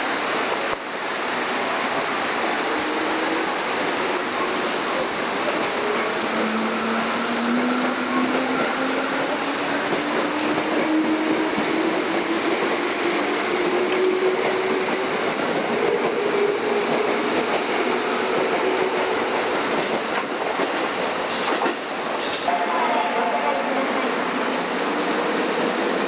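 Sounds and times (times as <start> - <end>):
train running noise: 0.0 - 26.0.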